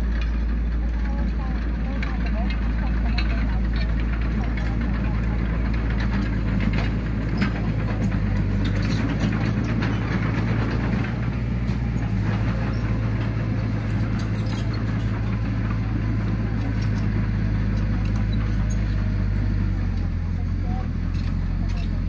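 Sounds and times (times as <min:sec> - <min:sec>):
clanks and rattles: 0:00.0 - 0:22.0
diesel engine running: 0:00.0 - 0:22.0.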